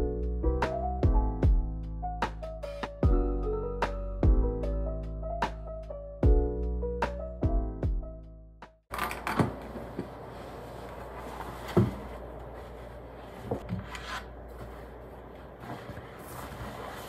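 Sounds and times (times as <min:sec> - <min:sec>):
fabric bag brushing: 0:10.2 - 0:17.0.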